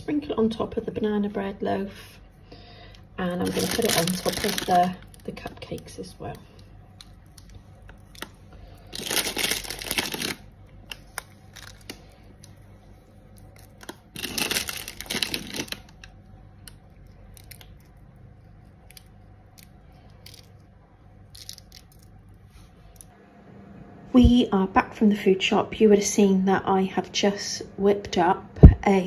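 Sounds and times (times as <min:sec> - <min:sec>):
sugar sprinkling rustle: 0:03.2 - 0:16.0.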